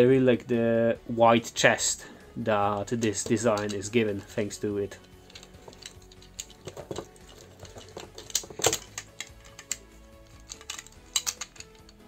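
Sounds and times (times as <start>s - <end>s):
faint background music: 0.0s - 12.0s
plastic action figure clicking: 5.0s - 12.0s.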